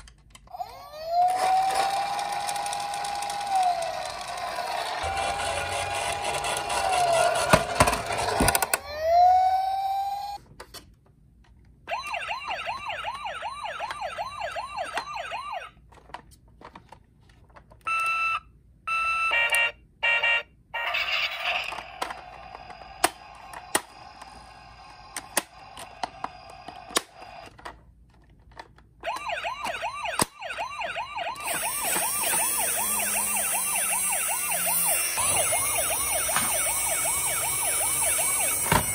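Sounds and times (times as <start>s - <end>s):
toy wailing siren: 0.5s - 10.4s, 11.9s - 15.7s, 17.9s - 27.5s, 29.0s - 38.9s
toy rolling rattle: 1.1s - 8.8s
fast yelp siren: 29.1s - 38.9s.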